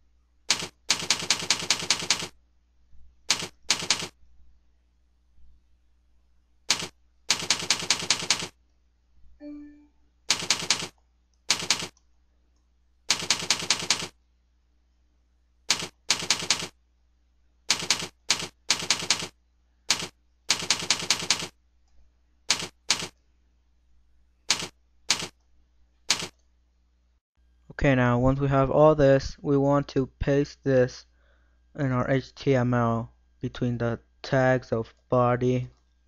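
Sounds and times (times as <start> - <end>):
keyboard typing clicks: 0.5 - 2.4, 3.3 - 4.2, 6.7 - 8.5, 10.3 - 12.1, 13.1 - 14.2, 15.7 - 16.7, 17.7 - 19.3, 19.9 - 21.5, 22.5 - 23.2, 24.5 - 25.4, 26.1 - 26.4.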